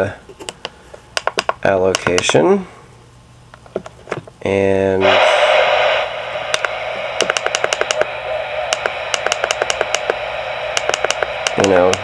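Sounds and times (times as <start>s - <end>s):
channel selector clicks: 0.5s - 2.4s
radio receiver hiss: 4.7s - 12.0s.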